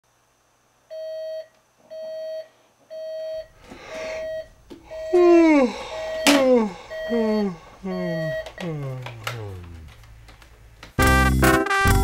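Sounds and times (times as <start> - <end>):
alarm clock beeping: 0.9 - 8.7
person's voice: 5.0 - 10.1.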